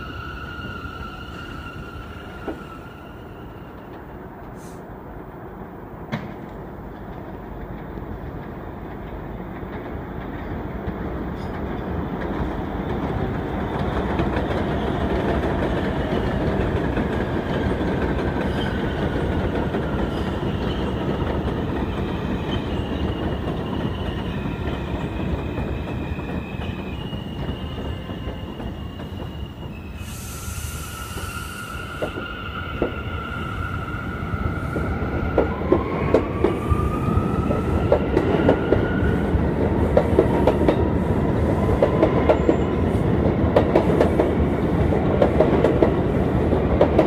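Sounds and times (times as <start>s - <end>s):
high wheel squeal: 0.0s - 3.9s, 22.4s - 34.8s
subway train rumble and clatter: 0.0s - 47.0s.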